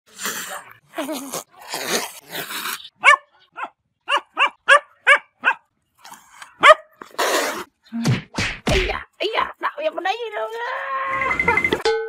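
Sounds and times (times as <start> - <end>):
dog barking: 3.0 - 5.7, 6.6 - 7.0.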